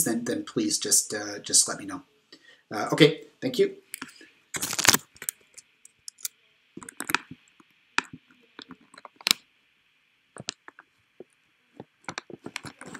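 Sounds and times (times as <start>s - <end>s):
faint steady hiss: 0.0s - 12.9s.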